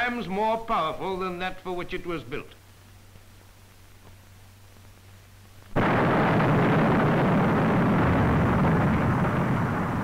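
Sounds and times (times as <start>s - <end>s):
big gun blast: 5.8s - 10.0s.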